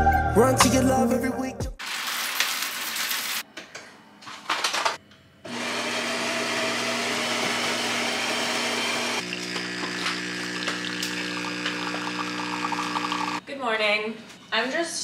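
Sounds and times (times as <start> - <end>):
brewing pump humming: 5.5 - 13.4
coffee grinder grinding beans: 5.5 - 13.4.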